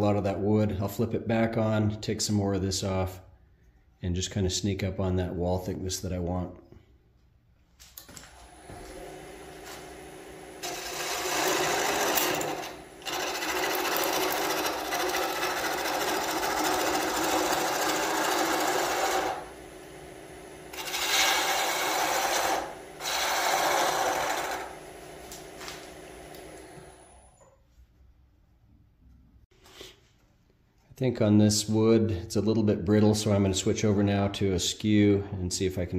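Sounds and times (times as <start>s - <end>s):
wood lathe humming: 8.4s - 27.4s
gouge cutting spinning wood: 8.6s - 27.2s.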